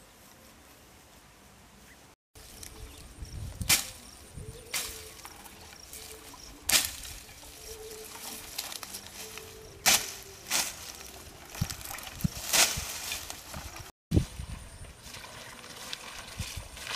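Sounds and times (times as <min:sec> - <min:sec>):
rustling vegetation: 0:00.0 - 0:16.9
hoe chopping into earth: 0:06.7 - 0:07.2, 0:09.8 - 0:10.9, 0:12.4 - 0:13.2.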